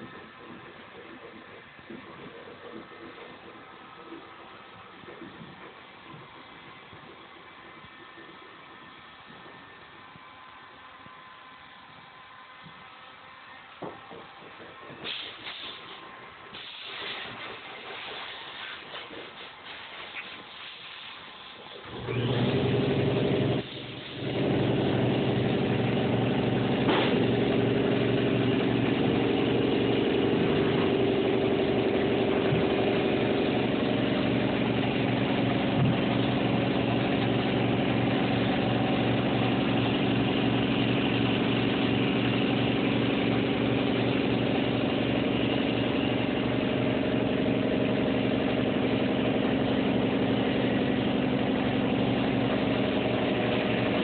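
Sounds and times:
machine motor pulsing hum: 21.8s - 54.0s.

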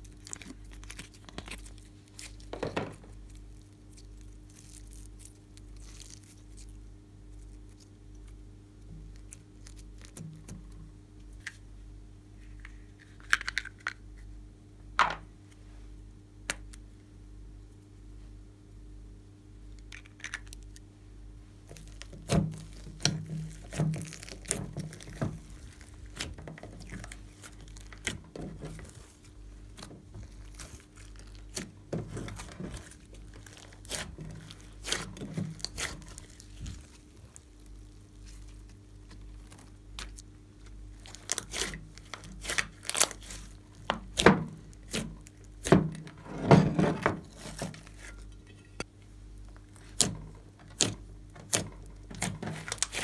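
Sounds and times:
faint steady hum: 0.0s - 53.0s
slime squelching and popping: 21.7s - 45.8s.

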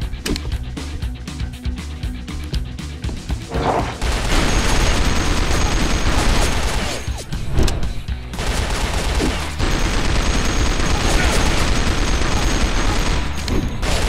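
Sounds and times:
background music: 0.0s - 14.0s
rapid gunfire: 4.0s - 7.2s, 8.3s - 14.0s.

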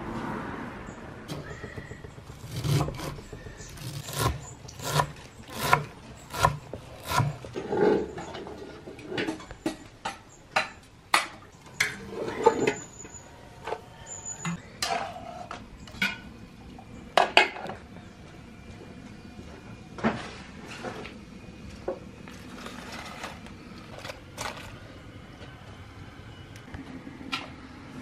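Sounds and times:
knife chopping on wooden board: 2.0s - 7.4s.

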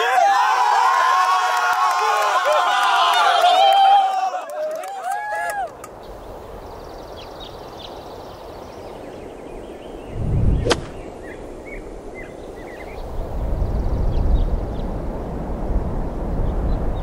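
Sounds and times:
small birds chirping: 5.9s - 15.1s
wind rumbling on microphone: 6.0s - 17.0s.

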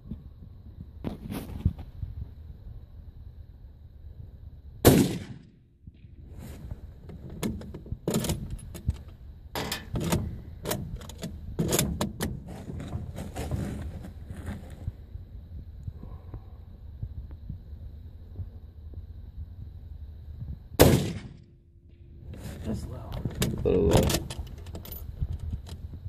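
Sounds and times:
loud rifle shot with echo: 4.8s - 5.5s, 20.8s - 21.4s.

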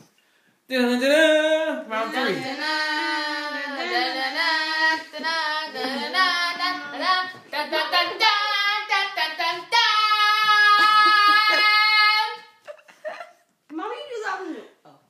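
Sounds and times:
high-pitched voices singing: 1.4s - 12.6s.

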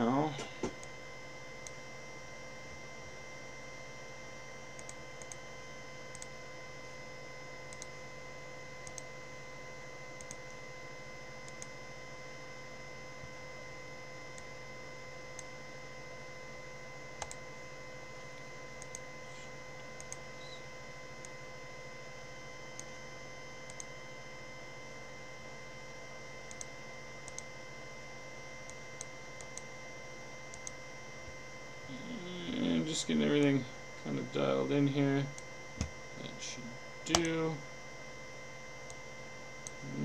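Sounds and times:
electrical hum: 0.0s - 40.0s
computer mouse clicks: 4.8s - 5.4s, 6.1s - 6.3s, 7.7s - 8.0s, 8.8s - 9.1s, 10.2s - 10.6s, 11.4s - 11.7s, 17.2s - 17.4s, 18.8s - 19.0s, 20.0s - 20.6s, 23.7s - 23.9s, 26.5s - 27.5s, 28.7s - 29.7s, 30.5s - 30.8s.

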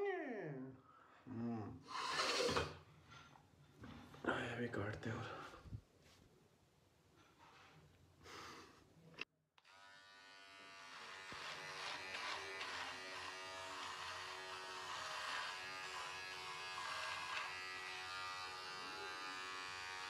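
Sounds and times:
electric beard trimmer buzzing: 9.6s - 20.0s.

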